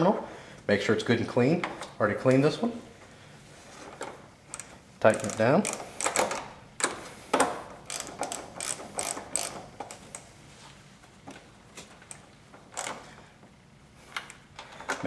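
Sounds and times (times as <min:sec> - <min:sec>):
ratchet wrench clicking: 0:04.5 - 0:06.9, 0:07.8 - 0:10.3, 0:12.1 - 0:13.0.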